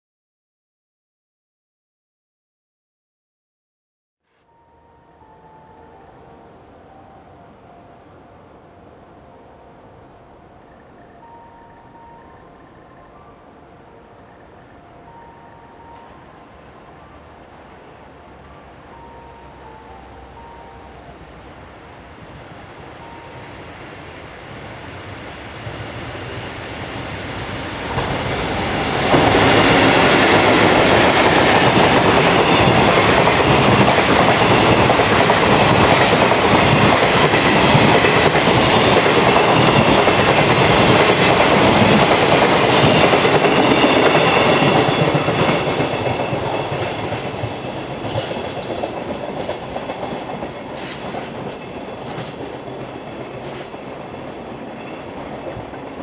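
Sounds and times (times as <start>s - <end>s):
freight train passing: 4.4s - 56.0s
wheels clacking over rail joints: 25.4s - 56.0s.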